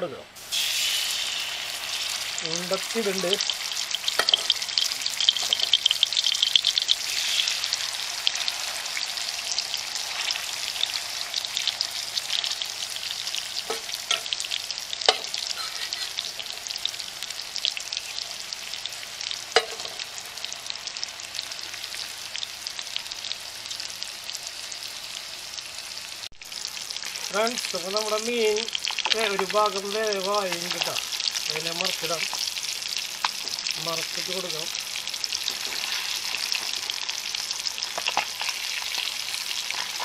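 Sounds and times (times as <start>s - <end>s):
fish sizzling in oil: 0.1s - 40.0s.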